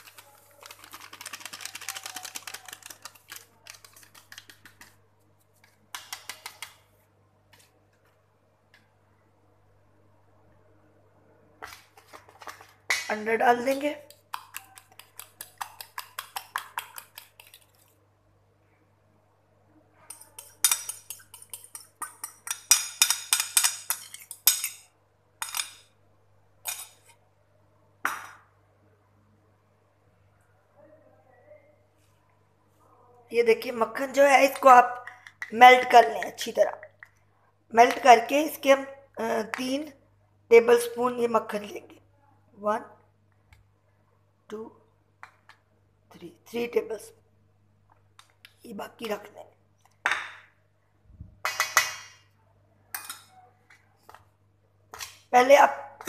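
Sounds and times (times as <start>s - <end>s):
metal fork clinking on dish: 20.1s - 25.8s.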